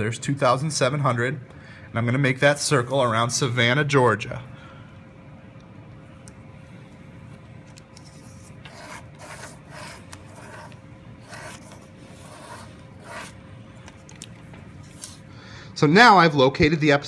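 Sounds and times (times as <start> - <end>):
pen scratching on paper: 8.0 - 13.4.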